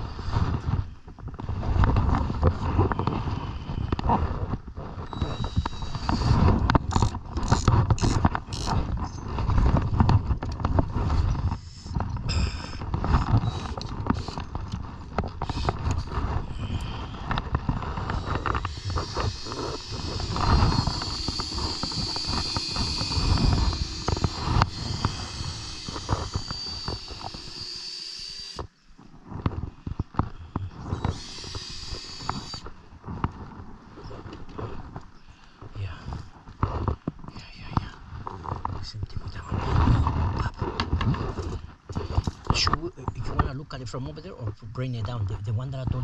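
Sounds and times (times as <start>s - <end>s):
steady low rumble: 0.0s - 33.9s.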